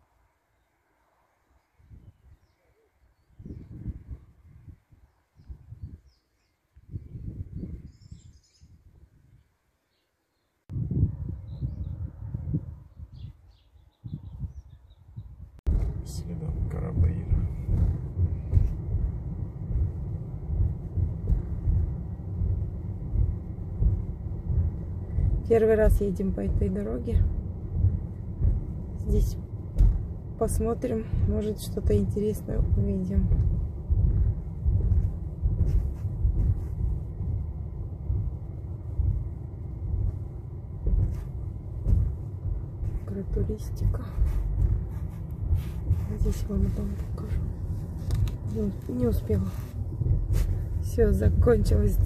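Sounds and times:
car tyres rumbling over concrete road: 0:15.7 - 0:52.0
short knocks: 0:27.8 - 0:30.2.

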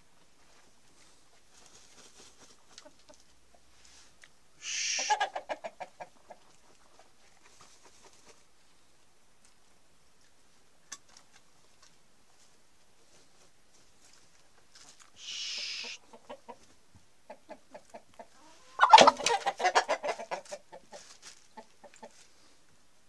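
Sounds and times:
chickens clucking: 0:01.0 - 0:03.9, 0:04.6 - 0:08.7, 0:15.1 - 0:22.5
chicken squawk: 0:04.6 - 0:06.4, 0:15.2 - 0:16.6, 0:17.4 - 0:21.1.

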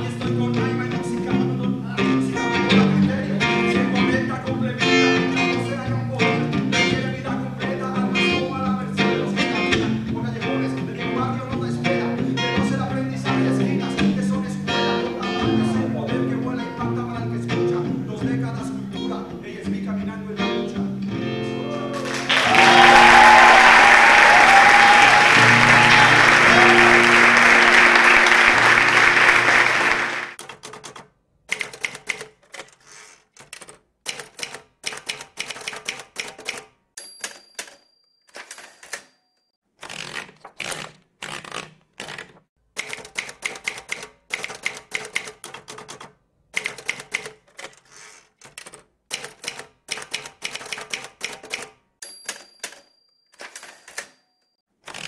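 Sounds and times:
music: 0:00.0 - 0:23.7, 0:24.7 - 0:30.4
crowd applauding: 0:21.8 - 0:30.4
typewriter keystrokes clattering: 0:30.4 - 0:39.1, 0:39.8 - 0:54.2
typewriter bell ring: 0:34.1 - 0:39.6, 0:49.2 - 0:54.6.

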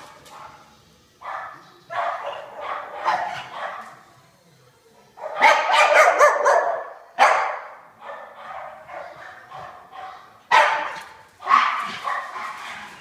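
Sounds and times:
dog barking: 0:00.0 - 0:04.0, 0:05.2 - 0:13.0.

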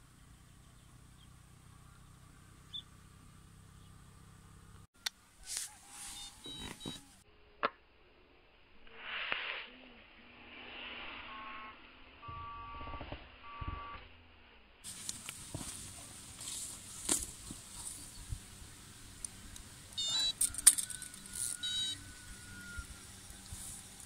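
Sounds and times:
rustling: 0:05.4 - 0:07.2, 0:14.8 - 0:18.8
electronic bite alarm beeping: 0:06.1 - 0:07.1, 0:11.3 - 0:14.0, 0:20.0 - 0:22.9.

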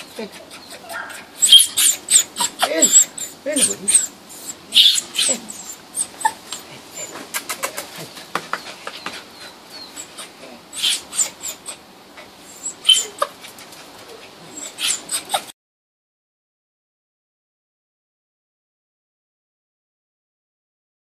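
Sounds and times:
dog whimpering and yelping: 0:00.0 - 0:15.5.

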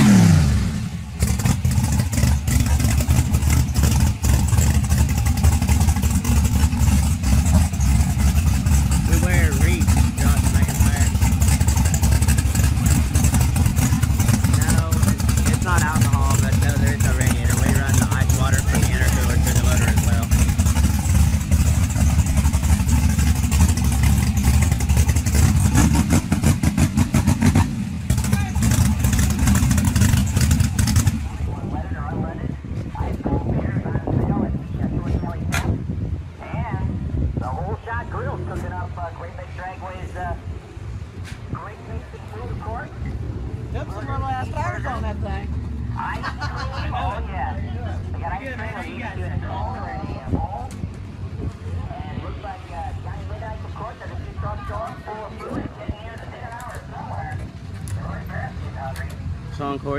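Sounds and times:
drag car engine idling unevenly: 0:00.0 - 0:36.3.

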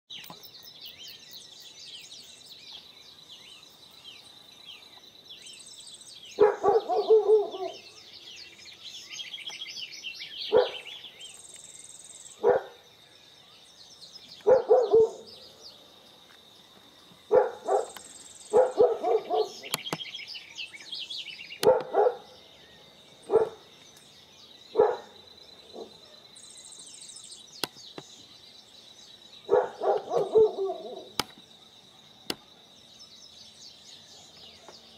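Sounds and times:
birds chirping and trilling: 0:00.1 - 0:34.9
loud low bird calls: 0:00.1 - 0:34.9.

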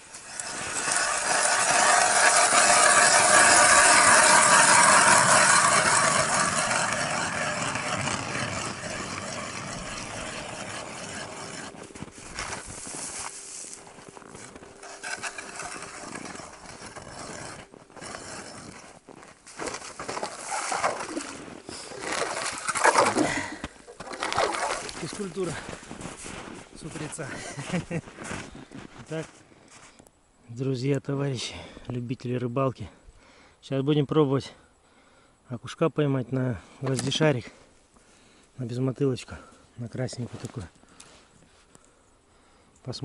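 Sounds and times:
ice auger scraping grind: 0:00.0 - 0:29.3
quiet scrapes and knocks: 0:00.0 - 0:30.0, 0:36.8 - 0:37.4.

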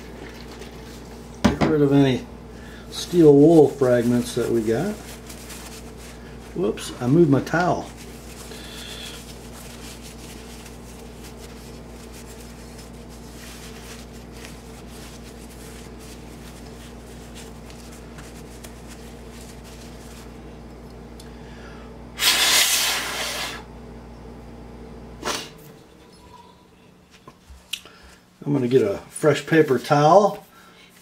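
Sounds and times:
steady low hum: 0:00.0 - 0:31.0
paper towel scrubbing metal: 0:03.0 - 0:20.4.

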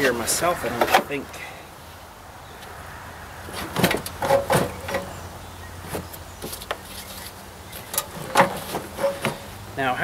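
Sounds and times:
metal tank knocking and scraping: 0:03.7 - 0:05.2, 0:07.9 - 0:09.5.

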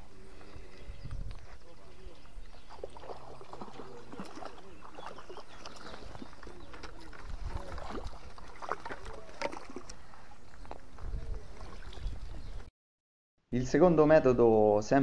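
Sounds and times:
water splashing and sloshing: 0:01.4 - 0:12.7.

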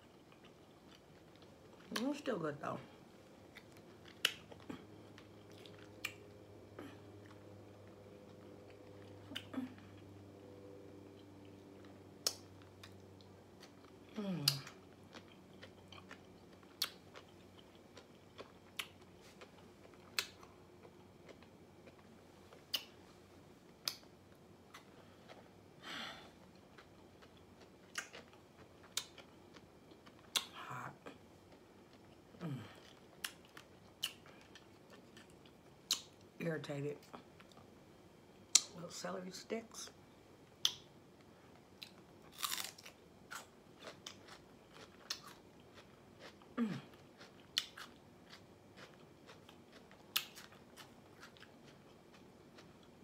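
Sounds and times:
chewing crunchy vegetables: 0:00.0 - 0:25.6, 0:26.3 - 0:36.3, 0:40.6 - 0:53.0
person humming mm: 0:14.1 - 0:14.8.

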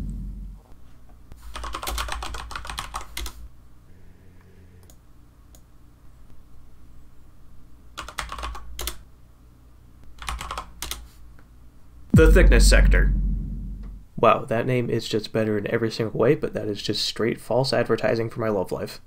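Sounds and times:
computer keyboard typing: 0:01.5 - 0:03.4, 0:08.0 - 0:09.0, 0:10.2 - 0:11.1.

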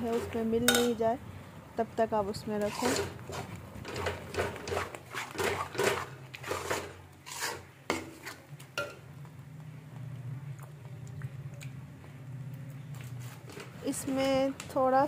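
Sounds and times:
metal spatula scraping a pan: 0:00.0 - 0:00.9, 0:02.6 - 0:08.5.

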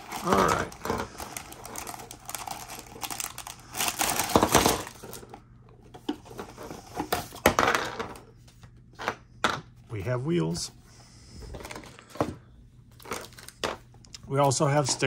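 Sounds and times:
plastic bags crinkling: 0:00.0 - 0:05.4, 0:12.9 - 0:13.8.

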